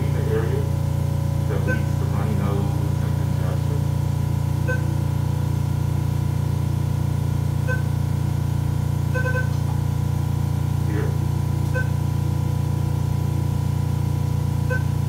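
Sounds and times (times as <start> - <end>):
steady low hum: 0.0 - 15.0
short electronic beeps: 4.6 - 5.0, 7.6 - 8.0, 9.1 - 9.6, 11.7 - 12.0, 14.6 - 15.0.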